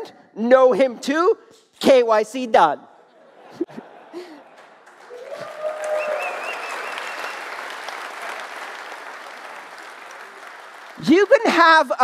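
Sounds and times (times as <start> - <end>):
audience applauding: 4.2 - 11.5.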